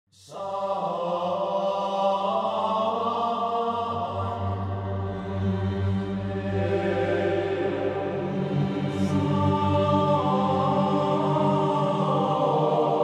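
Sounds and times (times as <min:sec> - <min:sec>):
low drone: 0:02.3 - 0:13.0
sustained notes music: 0:03.8 - 0:13.0.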